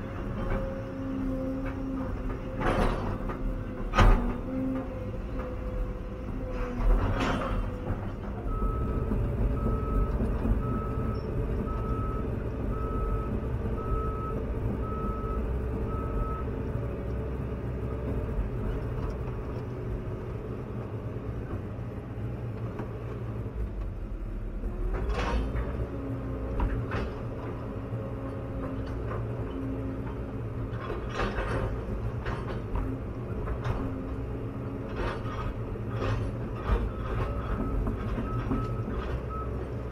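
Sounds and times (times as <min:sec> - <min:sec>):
excavator engine and hydraulics: 0:00.0 - 0:39.9
electronic warning beep: 0:08.5 - 0:16.5.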